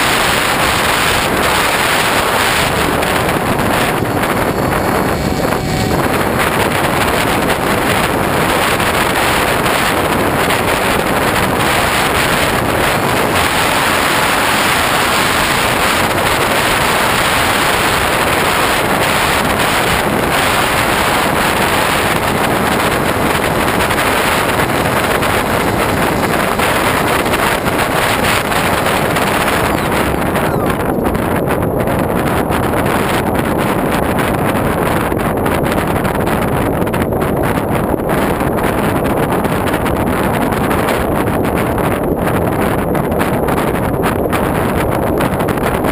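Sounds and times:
loud wind rush on camera: 0:00.0 - 0:45.9.

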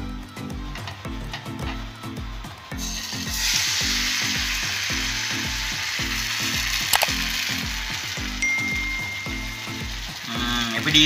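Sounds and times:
batter sizzling on hot pan: 0:02.8 - 0:11.0.

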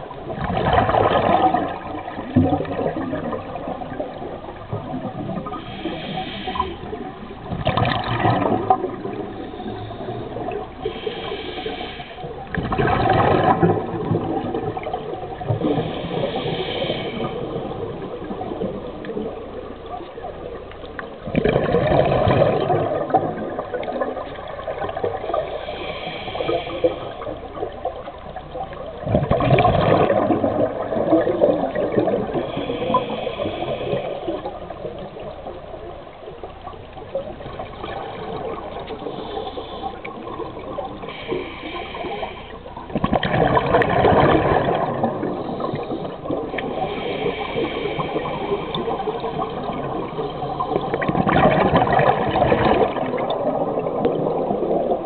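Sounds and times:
exhaled bubbles rushing: 0:00.0 - 0:10.8, 0:12.4 - 0:25.8, 0:26.4 - 0:41.3, 0:42.8 - 0:55.0
regulator inhalation hiss: 0:05.4 - 0:07.1, 0:09.2 - 0:12.4, 0:15.7 - 0:18.0, 0:25.2 - 0:27.6, 0:32.4 - 0:34.8, 0:38.1 - 0:42.7, 0:45.2 - 0:51.0.

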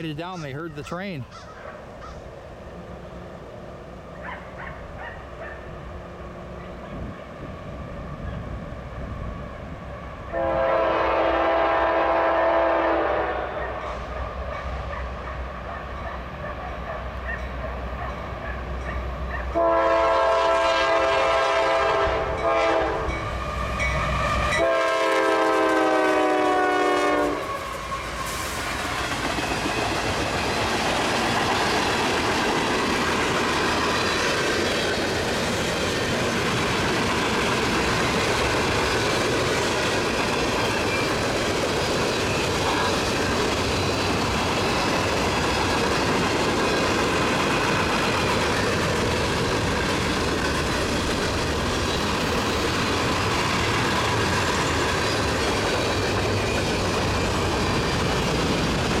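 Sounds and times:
diesel locomotive rumbling: 0:00.0 - 0:59.0
locomotive air horn blasts: 0:10.3 - 0:13.6, 0:19.5 - 0:23.9, 0:24.5 - 0:27.9
train wheels clattering on rail: 0:27.4 - 0:59.0.

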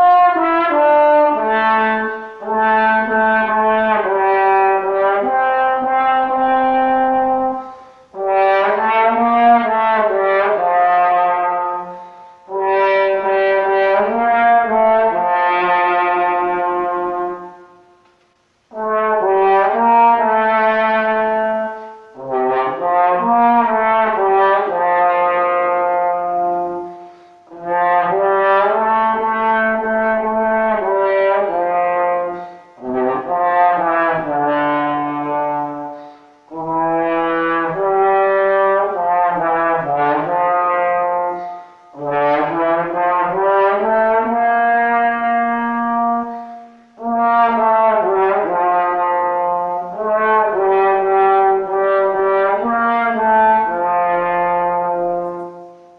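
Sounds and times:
trombone melody: 0:00.0 - 0:55.9.

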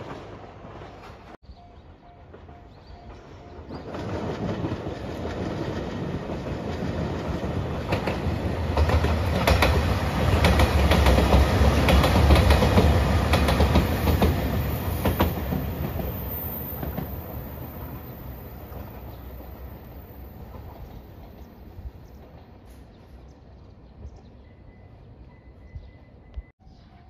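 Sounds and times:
diesel train engines rumbling: 0:00.0 - 0:26.5
train wheels clicking over rail joints: 0:02.4 - 0:17.2.

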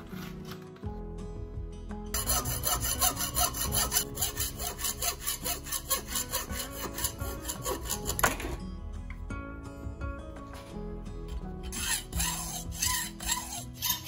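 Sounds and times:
hacksaw rasping on metal: 0:02.2 - 0:08.5, 0:11.7 - 0:14.0.

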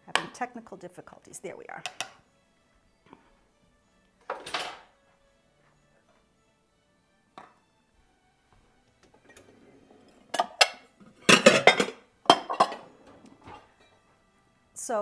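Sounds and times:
dishes clinking and clunking: 0:04.2 - 0:05.0, 0:09.0 - 0:14.1.

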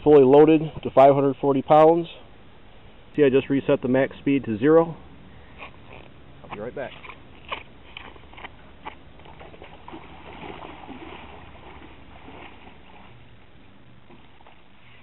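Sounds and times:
wading through water: 0:07.0 - 0:15.0.

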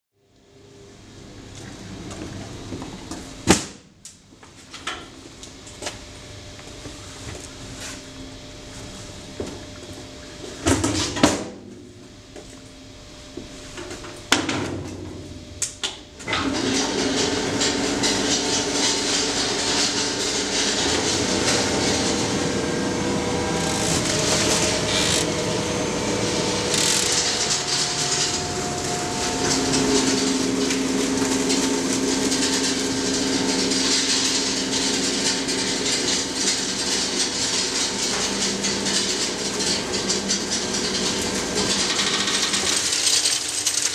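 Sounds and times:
paper shredding machine running: 0:16.2 - 0:43.9.

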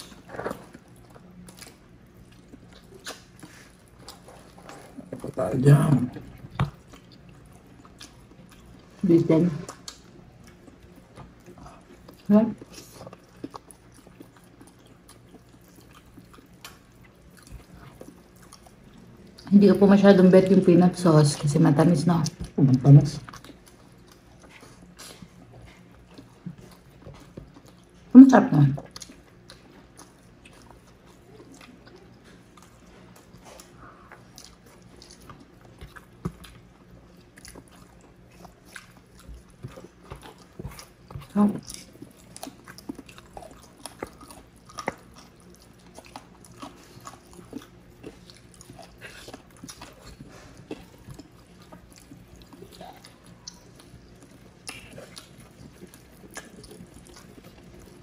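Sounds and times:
chewing and mouth sounds: 0:00.0 - 0:58.0.

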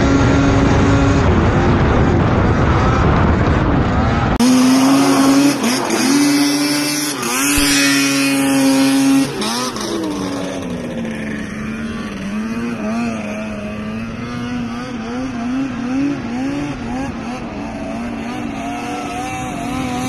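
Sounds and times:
distant snowmobile engine wavering: 0:00.0 - 0:20.0
snowmobile engine high revs: 0:04.3 - 0:20.0.

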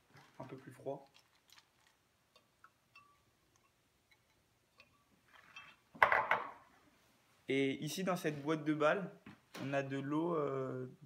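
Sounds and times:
spoon stirring: 0:02.2 - 0:05.9.

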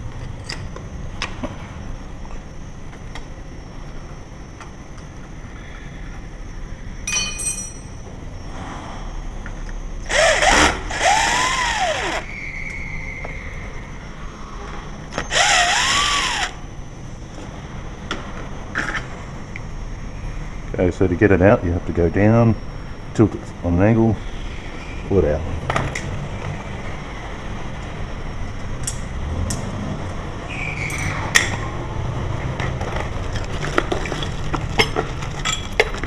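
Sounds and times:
cordless drill running: 0:10.1 - 0:12.2, 0:15.3 - 0:16.6.

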